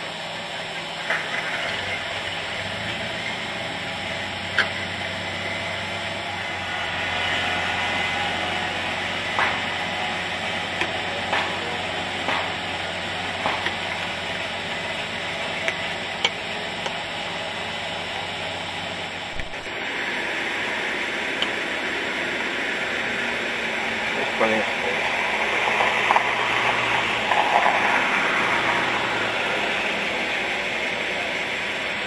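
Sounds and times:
tractor engine humming: 0:00.0 - 0:32.0
tyres on gravel: 0:19.2 - 0:19.8.

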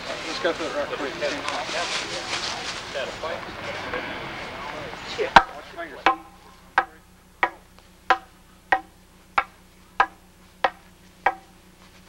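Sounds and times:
wooden staffs clacking together: 0:05.3 - 0:11.5.

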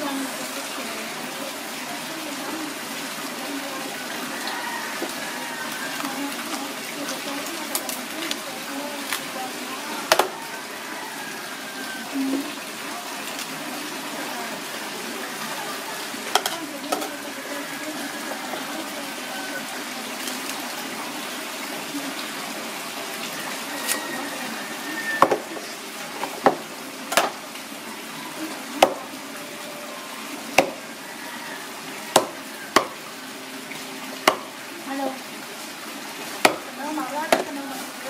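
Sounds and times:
cleaver chopping on wooden block: 0:10.1 - 0:10.4, 0:25.2 - 0:25.4, 0:28.8 - 0:29.0, 0:30.6 - 0:30.8, 0:32.1 - 0:33.0, 0:34.2 - 0:34.5, 0:36.4 - 0:36.7.

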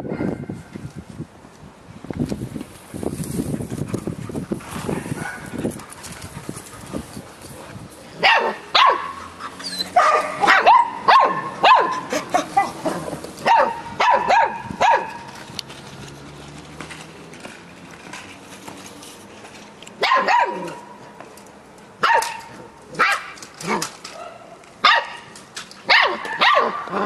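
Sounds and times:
puppy barking and yelping: 0:08.2 - 0:15.3, 0:20.0 - 0:20.9, 0:25.9 - 0:27.0.

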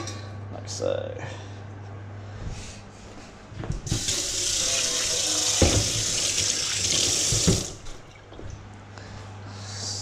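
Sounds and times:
kitchen tap running: 0:03.9 - 0:08.5.

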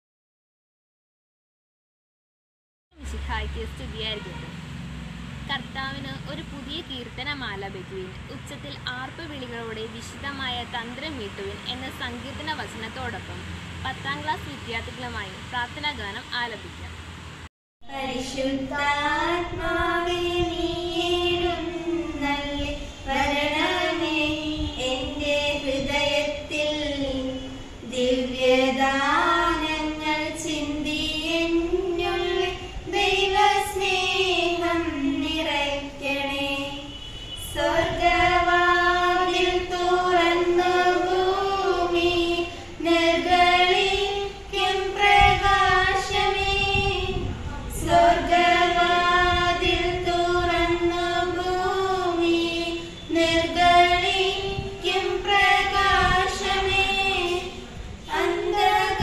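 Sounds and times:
girls singing unaccompanied: 0:17.8 - 0:59.0.

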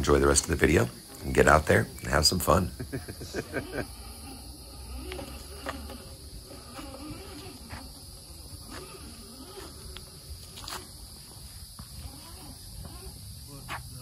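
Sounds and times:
insect drone: 0:00.0 - 0:14.0
electric motor whining: 0:03.3 - 0:14.0.

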